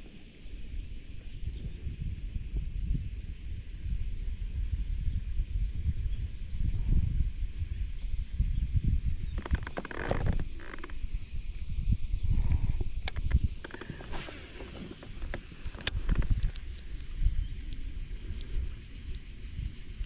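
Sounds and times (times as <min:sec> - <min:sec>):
wind buffeting microphone: 0:00.0 - 0:20.0
insects singing: 0:00.1 - 0:20.0
clatter of clicks: 0:13.0 - 0:16.6.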